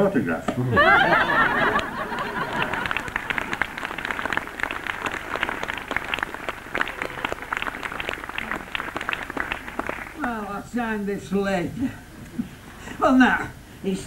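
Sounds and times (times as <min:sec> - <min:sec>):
audience applauding: 0:00.8 - 0:10.6.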